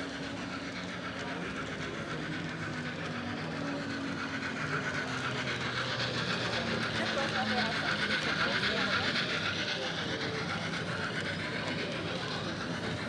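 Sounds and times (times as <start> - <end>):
simulated steam engine hiss: 0.0 - 13.0.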